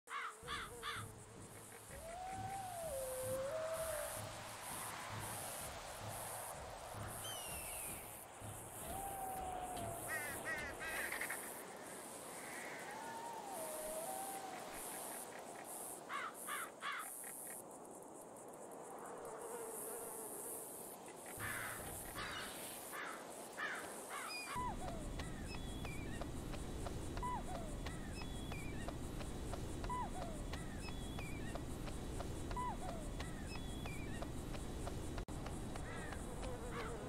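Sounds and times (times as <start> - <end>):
pulsing insect hum: 0.1 - 37.0
birds chirping: 7.0 - 11.7, 24.2 - 37.0.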